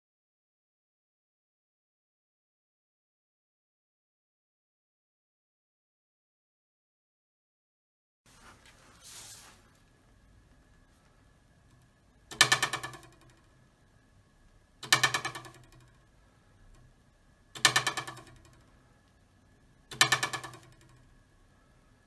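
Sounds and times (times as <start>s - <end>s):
ruler twanging: 12.3s - 13.4s, 14.8s - 16.0s, 17.6s - 18.6s, 19.9s - 21.0s.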